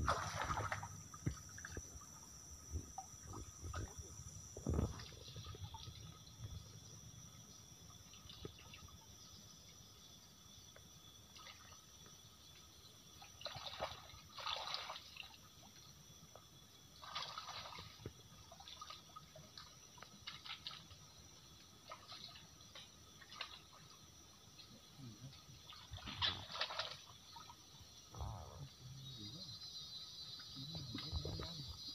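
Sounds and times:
water splashes: 0.0 - 6.2, 13.2 - 15.5, 17.0 - 27.8
stream water trickling: 0.0 - 31.9.

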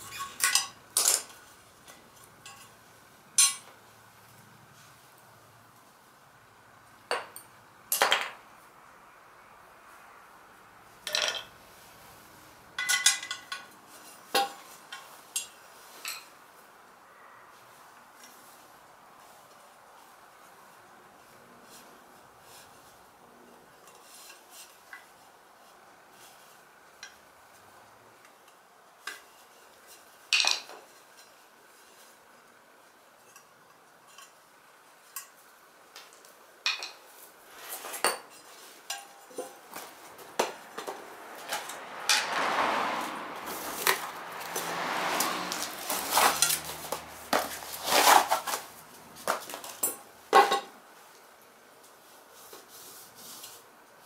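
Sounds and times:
metallic clinks of tools and wheel rim: 0.0 - 2.8, 3.4 - 3.7, 12.8 - 16.3, 43.6 - 48.5
scraping and rubbing: 37.4 - 49.8.

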